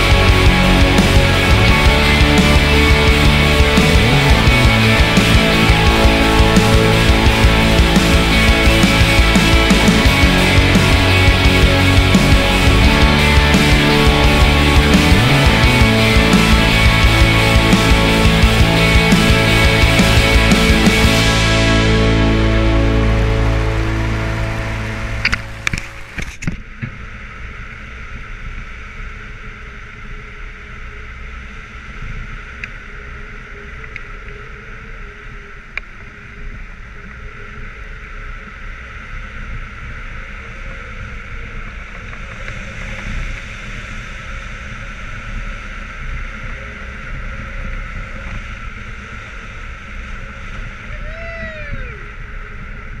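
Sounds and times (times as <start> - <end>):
background music: 0.0 - 26.2.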